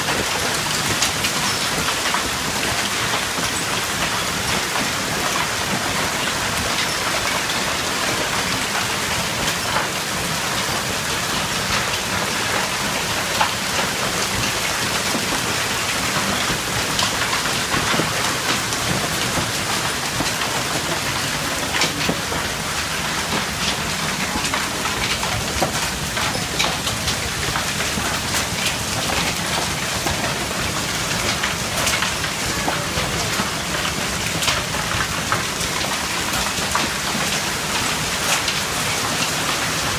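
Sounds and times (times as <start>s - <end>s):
hail pelting down: 0.0s - 39.9s.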